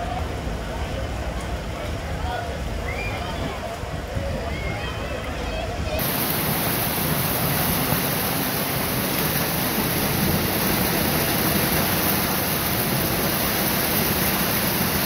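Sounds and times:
heavy rain on foliage: 6.0 - 15.0.

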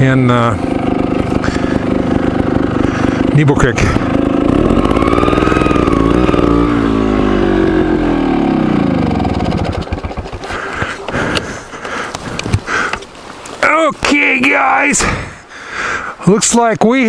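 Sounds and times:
motorcycle engine winding down: 0.0 - 12.9.

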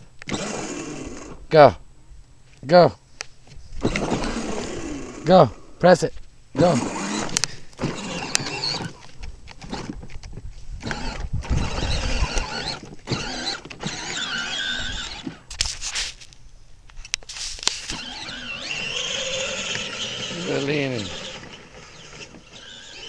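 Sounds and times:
electric toy vehicle whining: 0.2 - 1.4, 3.8 - 5.7, 6.6 - 10.1, 10.8 - 15.5, 17.6 - 23.0
plastic wheels rattling: 17.6 - 23.0.

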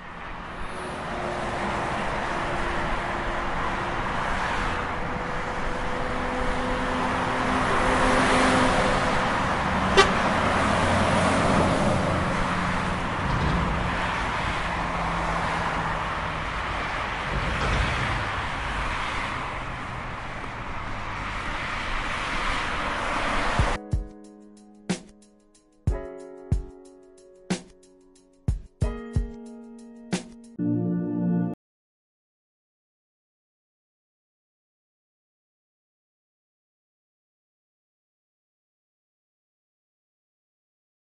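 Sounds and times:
cars driving past: 0.0 - 23.8
motorbike passing: 0.7 - 21.3.

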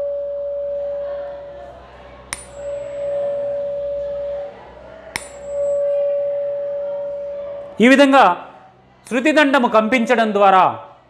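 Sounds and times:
tuning fork ringing tone: 0.0 - 1.6, 2.3 - 7.8
rubber hammer tapping tuning fork: 2.3 - 4.4, 5.1 - 7.5.

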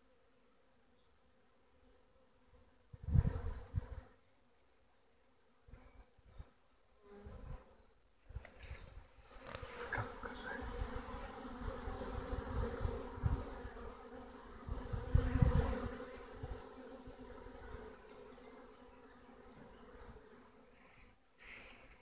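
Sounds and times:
bees buzzing: 8.7 - 21.2.

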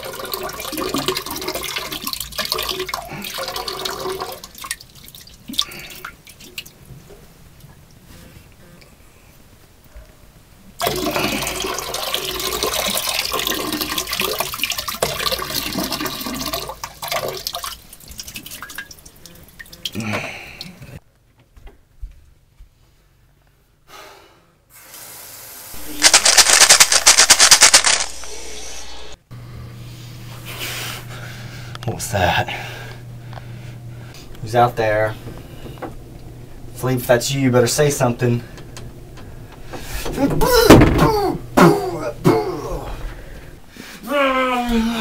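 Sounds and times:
water rushing through plumbing: 0.0 - 6.8, 10.8 - 20.9.

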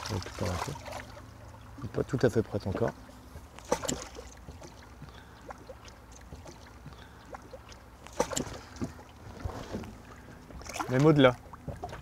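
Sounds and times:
low steady hum: 0.0 - 12.0
water splashing against boat: 0.0 - 12.0
fish thrashing at surface: 3.6 - 4.8, 7.3 - 8.9.

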